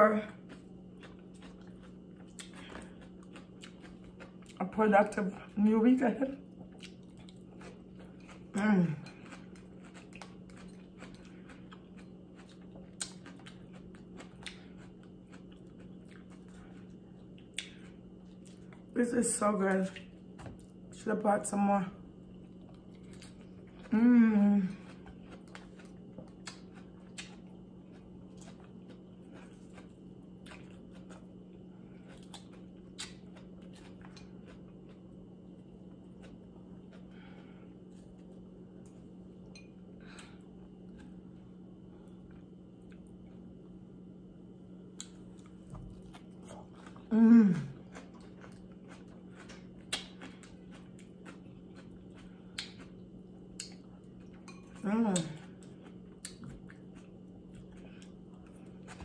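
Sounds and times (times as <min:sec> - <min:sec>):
soft chewing: 0:00.0 - 0:21.0, 0:21.9 - 0:59.0
low steady hum: 0:00.0 - 0:59.0
mouth clicks while chewing: 0:52.2 - 0:52.9.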